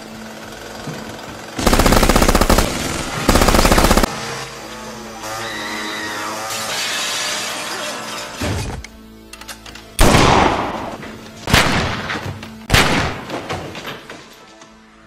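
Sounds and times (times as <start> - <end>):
film music: 1.6 - 15.0
gunshot sound effects: 10.0 - 13.2.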